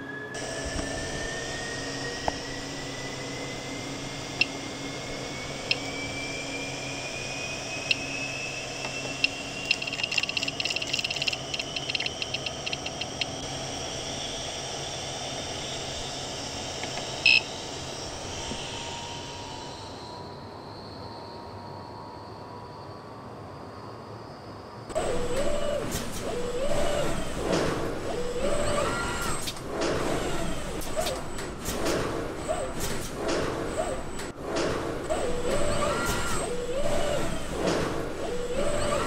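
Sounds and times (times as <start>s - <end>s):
faint whine rising in pitch: 0.0s - 27.3s
printer fans humming: 8.8s - 13.5s
control box beeping: 9.2s - 13.4s.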